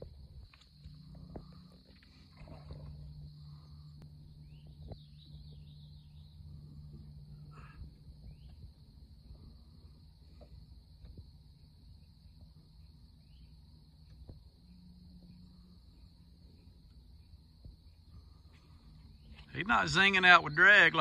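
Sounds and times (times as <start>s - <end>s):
insects droning: 0.0s - 21.0s
low steady hum: 0.0s - 21.0s
bird chirps: 3.5s - 8.7s.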